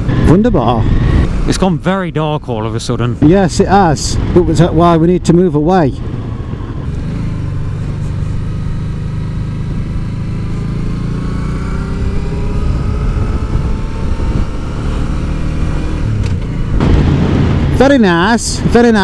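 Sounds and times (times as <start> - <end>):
motorcycle engine running: 6.1 - 17.7.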